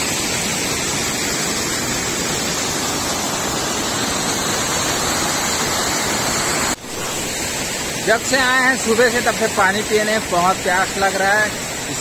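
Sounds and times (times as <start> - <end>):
waterfall rushing over rocks: 0.0 - 12.0.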